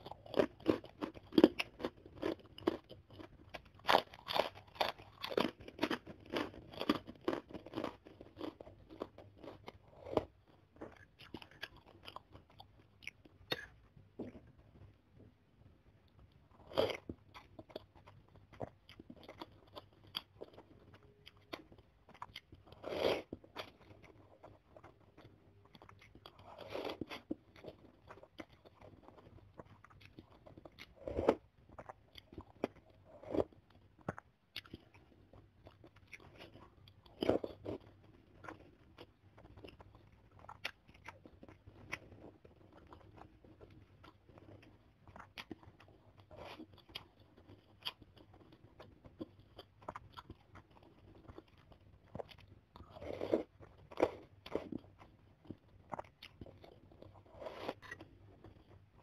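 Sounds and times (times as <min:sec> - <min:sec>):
wet chewing clicks: 0:16.9 - 0:59.0.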